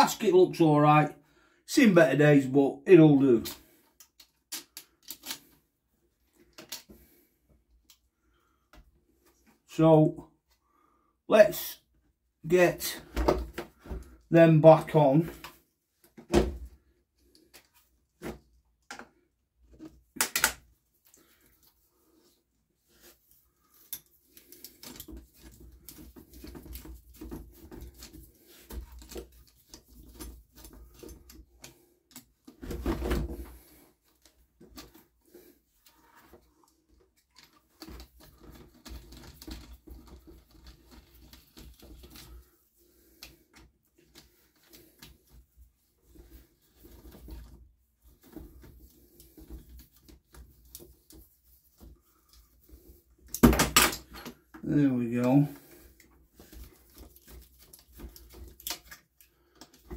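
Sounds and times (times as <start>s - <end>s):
hand tools and parts clicking: 3.5s - 5.6s.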